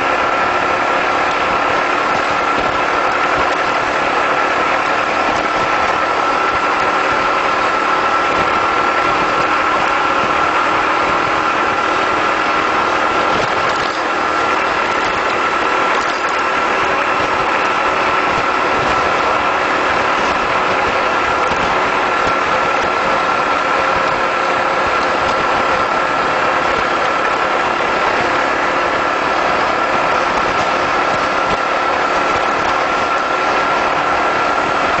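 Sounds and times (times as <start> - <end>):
motorcycle engine cruising: 0.0 - 35.0
steady high whine: 0.0 - 35.0
wind and road noise: 0.0 - 35.0.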